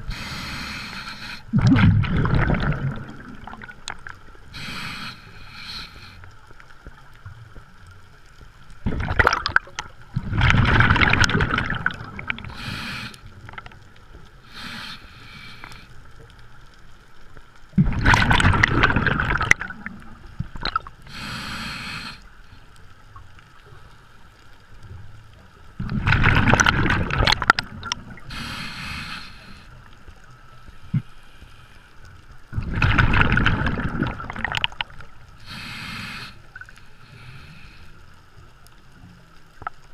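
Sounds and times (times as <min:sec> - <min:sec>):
regulator inhale hiss: 0:00.0 - 0:01.6, 0:04.4 - 0:06.5, 0:12.4 - 0:13.6, 0:14.4 - 0:16.3, 0:21.0 - 0:22.8, 0:28.2 - 0:32.2, 0:35.4 - 0:38.4
exhaled bubbles gurgling: 0:00.0 - 0:06.2, 0:08.7 - 0:15.5, 0:17.7 - 0:22.1, 0:25.8 - 0:29.5, 0:32.5 - 0:37.2.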